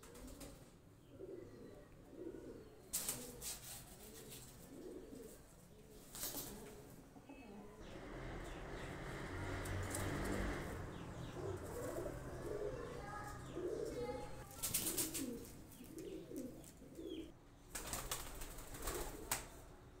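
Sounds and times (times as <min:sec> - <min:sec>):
wings flapping: 0:00.0 - 0:00.7, 0:02.9 - 0:04.7, 0:06.0 - 0:06.8, 0:14.5 - 0:16.9, 0:17.7 - 0:19.6
pigeons cooing: 0:00.0 - 0:17.4, 0:18.1 - 0:19.5.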